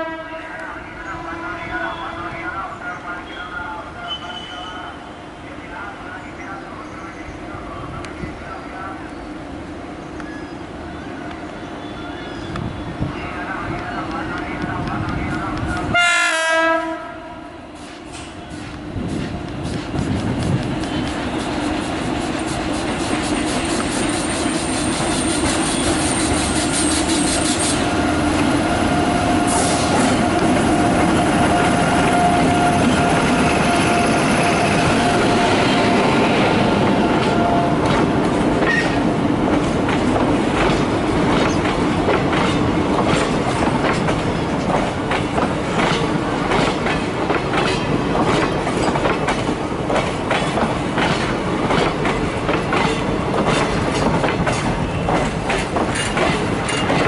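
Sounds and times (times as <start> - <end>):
train wheels rumbling on rail: 0.1 - 57.0
locomotive whine: 20.3 - 39.6
wheels clacking over rail joints: 36.9 - 57.0.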